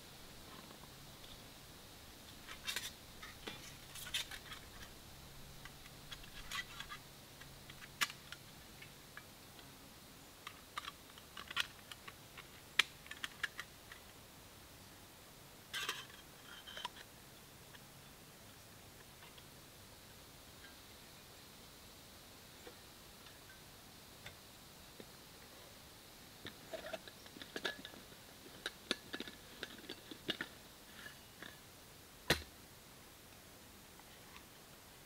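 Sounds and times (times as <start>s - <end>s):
camp cooking gear clicking and rattling: 10.4s - 14.1s, 26.4s - 31.6s.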